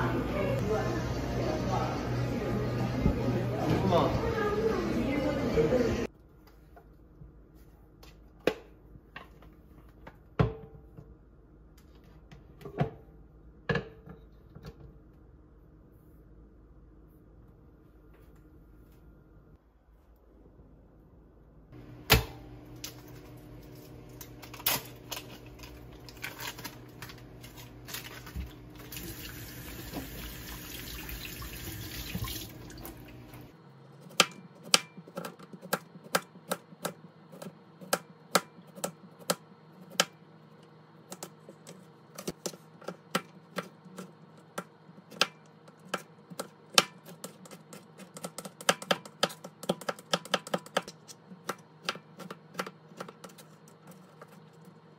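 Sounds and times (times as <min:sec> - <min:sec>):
tap running: 0:28.2 - 0:33.5.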